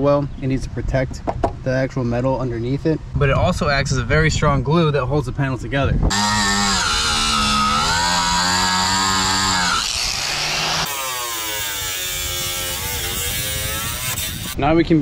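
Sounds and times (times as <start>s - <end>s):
angle grinder grinding: 6.1s - 14.6s.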